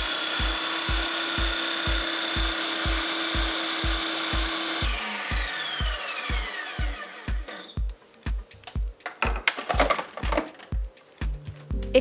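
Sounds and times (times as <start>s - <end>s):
blender motor whining: 0.0s - 7.8s
thumping background music: 0.0s - 12.0s.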